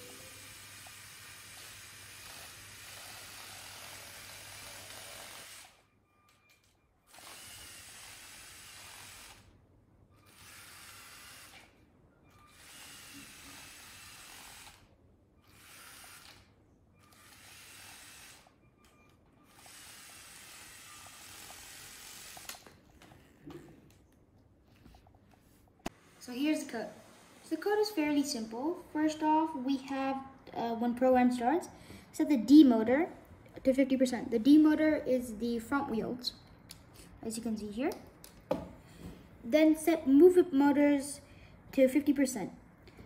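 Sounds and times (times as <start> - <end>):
toy robot motors whirring: 0.0 - 5.8, 7.1 - 9.5, 10.2 - 18.6, 19.5 - 22.7.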